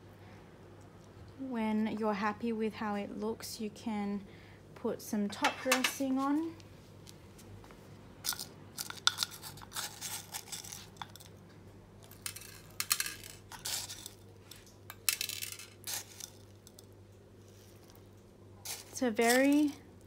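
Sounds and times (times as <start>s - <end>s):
pebbles rattling and scraping: 8.2s - 11.4s, 12.0s - 16.9s, 17.5s - 19.9s.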